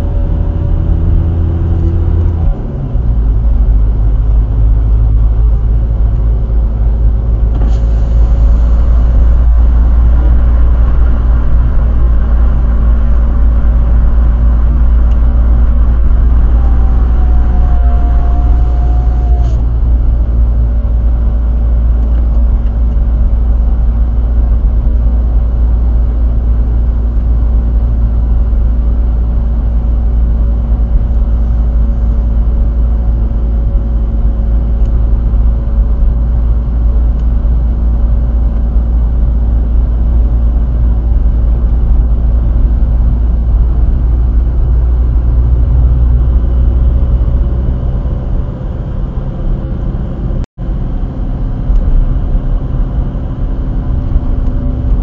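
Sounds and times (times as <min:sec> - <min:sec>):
diesel engine drone: 0:00.0 - 0:55.0
road and wind noise: 0:00.0 - 0:55.0
gear change: 0:07.3 - 0:20.4.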